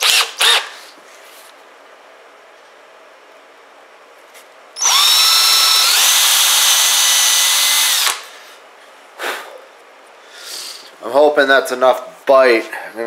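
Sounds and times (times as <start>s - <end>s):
power drill whine: 0.0s - 0.7s, 4.8s - 8.2s.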